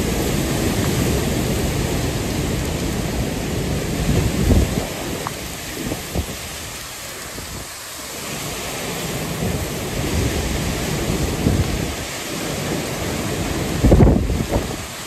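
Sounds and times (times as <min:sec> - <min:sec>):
torrential rain: 0:00.0 - 0:15.0
wind gusts buffeting microphone: 0:00.0 - 0:15.0.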